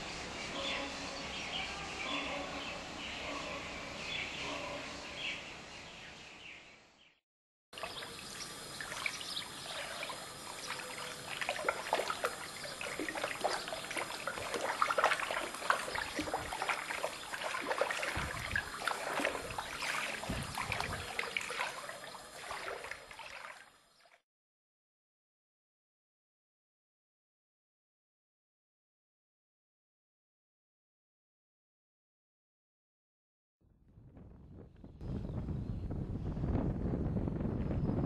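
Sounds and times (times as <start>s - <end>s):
faint ambience: 7.8s - 23.6s.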